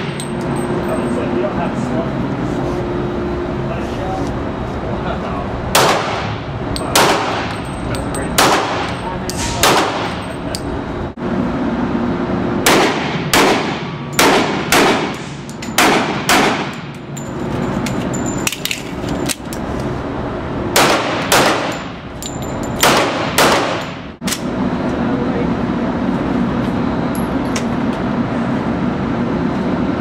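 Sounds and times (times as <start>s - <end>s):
handgun shots with echo: 5.8s - 6.3s, 6.9s - 7.5s, 8.4s - 10.2s, 12.7s - 16.8s, 20.8s - 21.8s, 22.8s - 24.4s.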